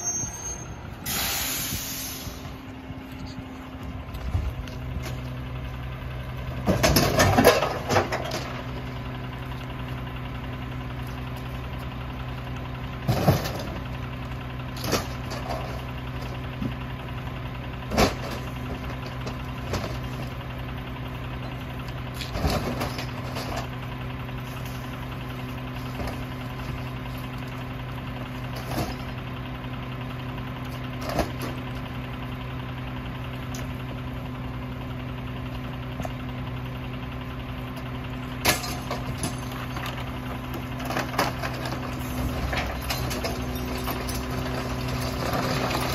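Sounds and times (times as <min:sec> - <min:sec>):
diesel engine idling: 0:00.0 - 0:45.9
junk crashing into hopper: 0:06.6 - 0:08.7, 0:13.0 - 0:13.9, 0:17.8 - 0:20.4, 0:22.2 - 0:23.7.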